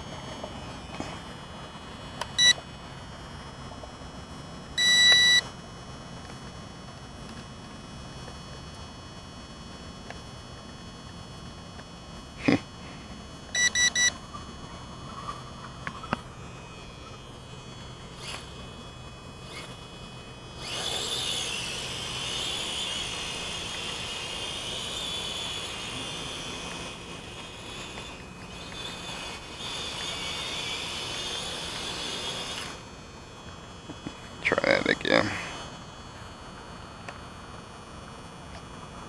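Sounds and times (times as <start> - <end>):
short beeps: 2.4 - 2.6, 4.8 - 5.5, 13.5 - 14.2
toy drone buzzing: 4.8 - 5.5, 12.3 - 37.5.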